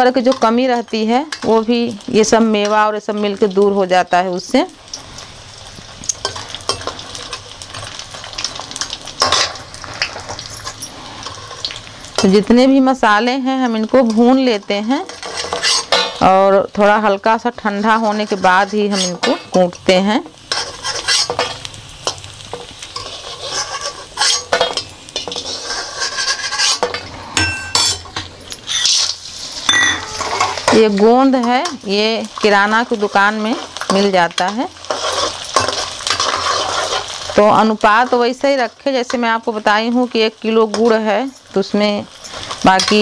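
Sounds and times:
food sizzling in oil: 0:00.0 - 0:43.0
steel ladle scraping a pan: 0:08.8 - 0:12.4, 0:14.0 - 0:16.2, 0:17.6 - 0:19.6, 0:20.4 - 0:31.7, 0:32.4 - 0:37.4.

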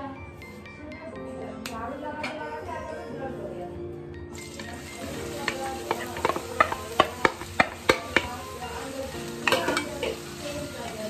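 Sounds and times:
onions sizzling in hot oil: 0:04.3 - 0:11.0
utensil knocking on pan: 0:04.6 - 0:11.0.

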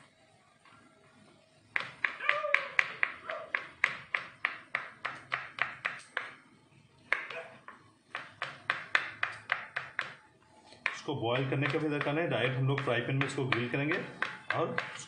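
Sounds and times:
knife chopping on wooden board: 0:01.8 - 0:06.4, 0:07.1 - 0:10.2, 0:10.8 - 0:15.0.

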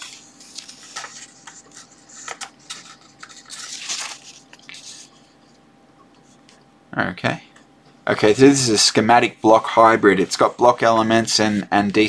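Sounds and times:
book pages turning: 0:00.0 - 0:05.6.

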